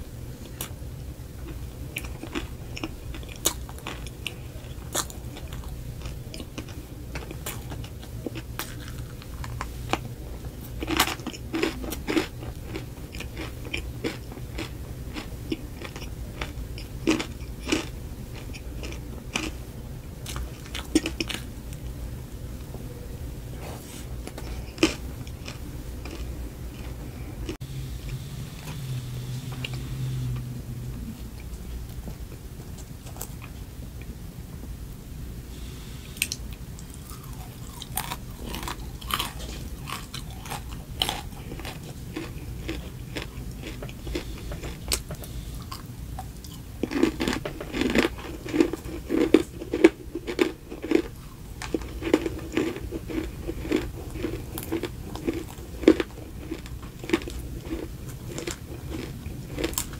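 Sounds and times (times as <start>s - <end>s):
crunchy chewing: 1.4s - 19.6s, 20.2s - 21.9s, 23.6s - 27.6s, 36.2s - 59.9s.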